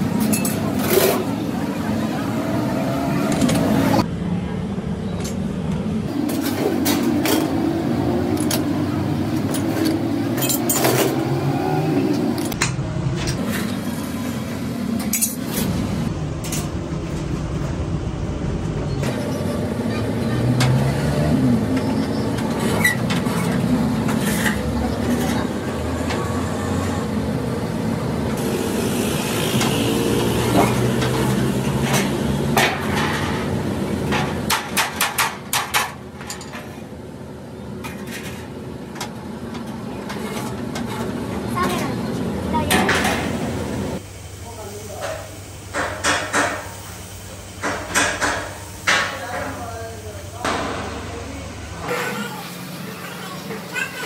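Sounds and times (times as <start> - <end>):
steel sheet clanking and scraping: 30.6 - 36.9, 39.6 - 42.0.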